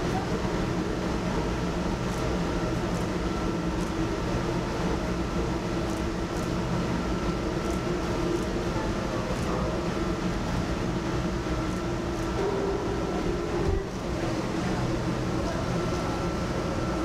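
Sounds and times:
furnace mechanical hum: 0.0s - 17.0s.

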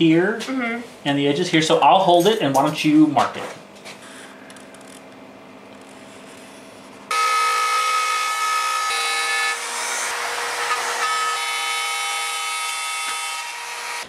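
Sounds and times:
power tool whining while cutting: 7.1s - 14.0s.

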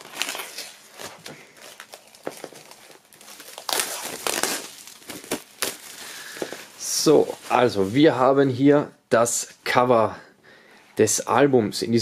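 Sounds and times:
plastic shrink-wrap crinkling: 0.0s - 8.1s.

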